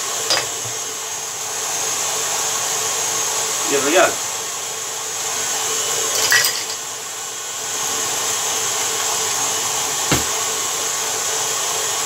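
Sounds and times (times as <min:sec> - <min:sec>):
stand mixer beating batter: 0:00.0 - 0:06.1, 0:06.8 - 0:12.0
single knock: 0:10.1 - 0:10.4.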